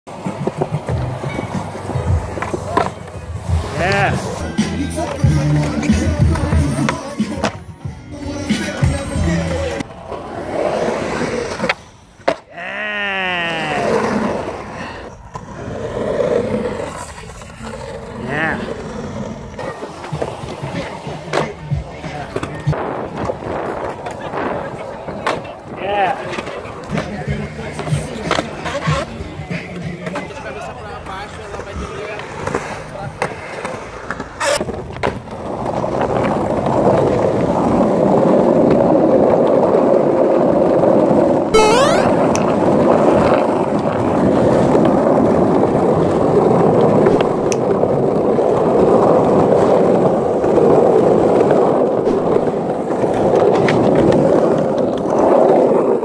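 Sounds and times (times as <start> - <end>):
skateboard wheels rolling on concrete: 0.1 - 56.0
tone falling in pitch: 41.6 - 42.4.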